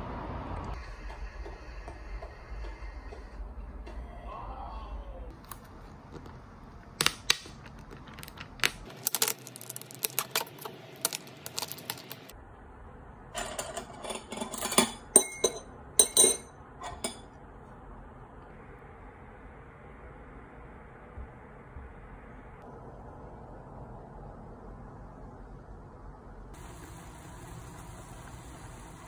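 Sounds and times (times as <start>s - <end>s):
plastic film crinkling: 7.8s - 12.3s.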